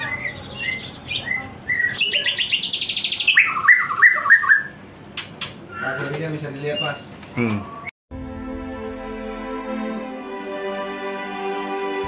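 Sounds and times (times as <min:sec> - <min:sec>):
bird singing whistled notes: 0:00.0 - 0:04.8.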